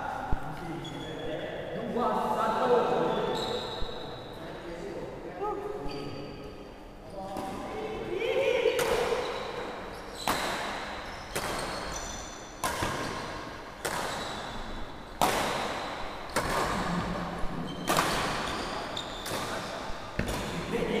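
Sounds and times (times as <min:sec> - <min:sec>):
badminton racket hitting shuttlecock: 0:12.6 - 0:14.6, 0:15.2 - 0:17.2, 0:17.8 - 0:20.7.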